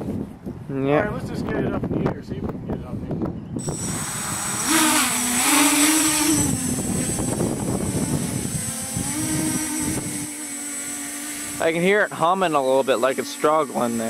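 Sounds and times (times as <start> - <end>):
quadcopter motors buzzing: 3.6 - 14.0.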